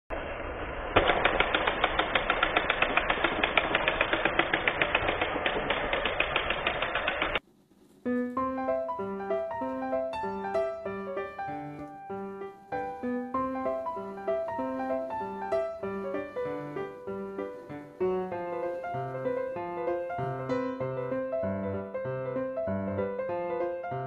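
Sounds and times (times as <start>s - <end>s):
toy train motor whirring and clicking: 1.0s - 7.4s
piano music: 8.0s - 24.0s.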